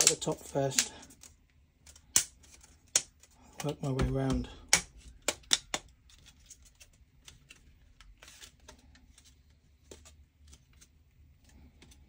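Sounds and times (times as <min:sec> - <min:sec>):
plastic clips snapping into place: 0:01.9 - 0:05.9.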